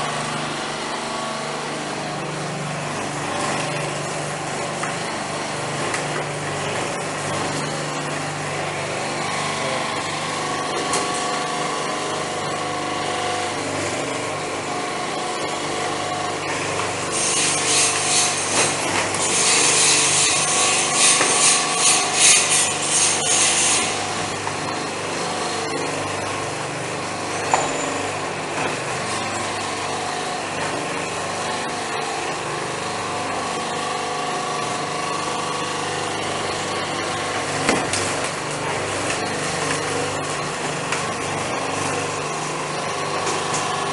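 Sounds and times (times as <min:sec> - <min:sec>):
machine motor hum: 0:00.0 - 0:43.9
coconut husk rasping and tearing: 0:16.6 - 0:24.3.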